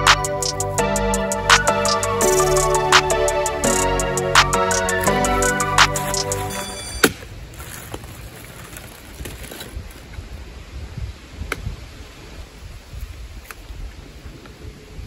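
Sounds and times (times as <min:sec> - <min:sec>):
background music: 0:00.0 - 0:07.2
wind rumble on microphone: 0:09.0 - 0:15.0.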